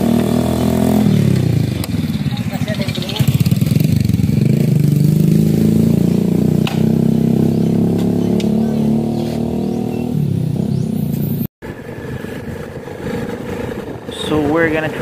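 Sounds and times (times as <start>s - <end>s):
motorcycle engine idling: 1.1s - 5.2s.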